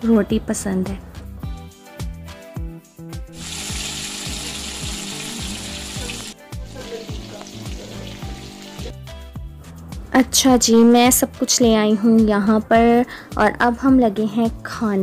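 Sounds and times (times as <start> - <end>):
background music with steady beat: 0.0 - 15.0
fish deep-frying in oil: 3.4 - 9.0.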